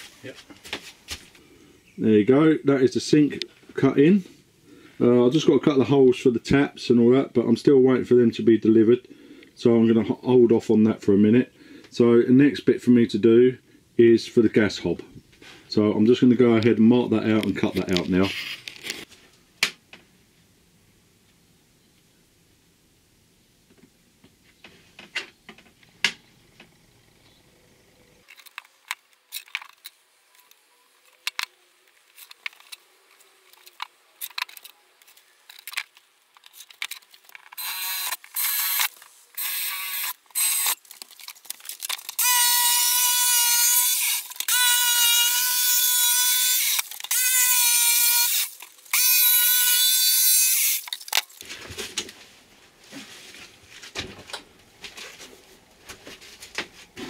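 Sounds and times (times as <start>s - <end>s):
cordless drill boring into wood: 37.6s - 40.8s, 42.2s - 51.0s
power tool motor whine: 37.6s - 40.8s, 42.2s - 50.9s.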